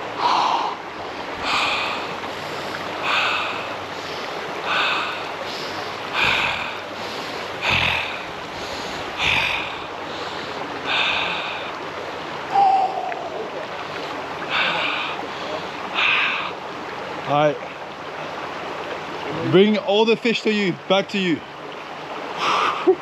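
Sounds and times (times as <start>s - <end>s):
swimmer gasping for breath: 0.0s - 11.8s
rushing river water: 0.0s - 23.0s.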